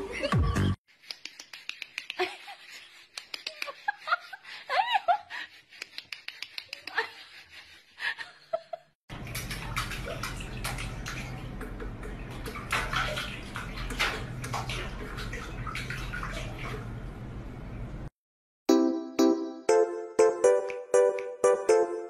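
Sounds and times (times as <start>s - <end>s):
water splashing: 9.1s - 17.2s.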